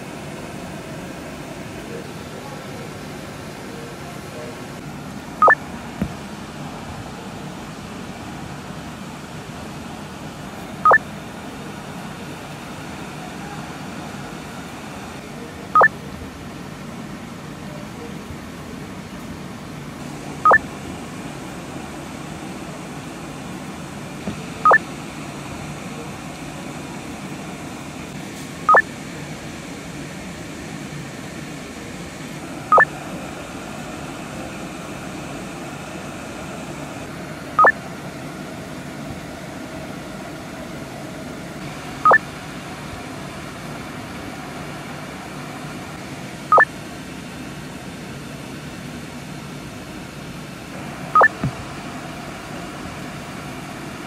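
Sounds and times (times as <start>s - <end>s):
low background hum: 0.0s - 54.0s
electronic two-tone beep: 51.2s - 51.4s.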